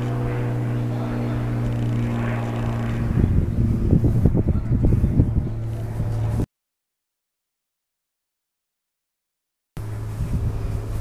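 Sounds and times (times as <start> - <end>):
low thumping and rumbling: 0.0 - 6.5
mechanical hum: 0.0 - 6.5, 9.8 - 11.0.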